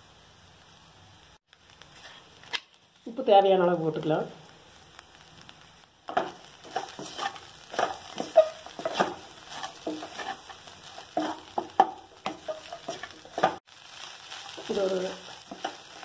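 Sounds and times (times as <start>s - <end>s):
frying sizzle: 0.0s - 16.0s
wooden spatula scraping steel pan: 6.1s - 13.6s, 14.5s - 16.0s.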